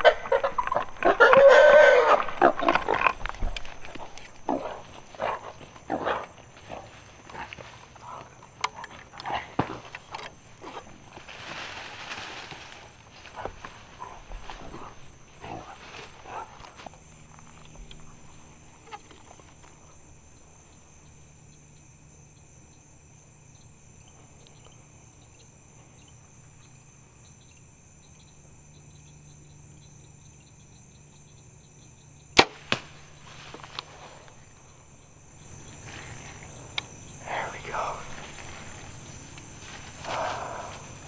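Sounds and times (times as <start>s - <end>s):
faint insect chirping: 0.0s - 41.0s
bow shot crack: 32.4s - 33.1s.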